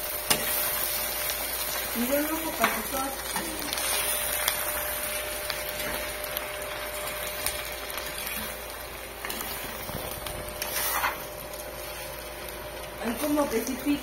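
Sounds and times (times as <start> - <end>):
vegetables sizzling in a pan: 0.0 - 14.0.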